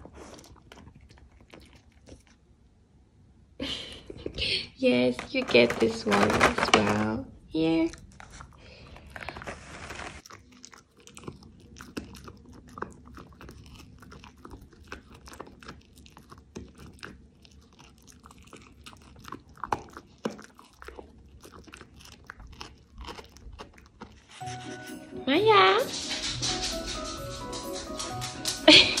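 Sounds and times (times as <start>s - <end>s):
dog crunching a treat: 0.0s - 2.5s, 5.0s - 7.2s, 7.8s - 24.6s.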